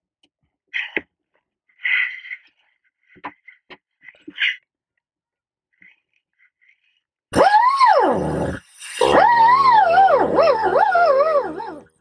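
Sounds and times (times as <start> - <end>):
dog howling: 9.0 - 11.9.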